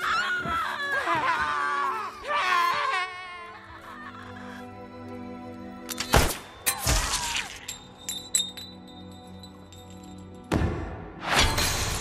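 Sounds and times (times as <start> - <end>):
low film score: 0.0 - 12.0
broken glass clinking: 7.5 - 10.4.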